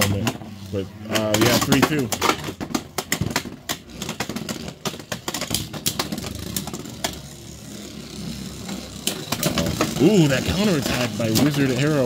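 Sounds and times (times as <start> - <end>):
tops clattering against plastic: 0.0 - 7.2, 9.0 - 11.9
spinning tops whirring: 2.8 - 12.0.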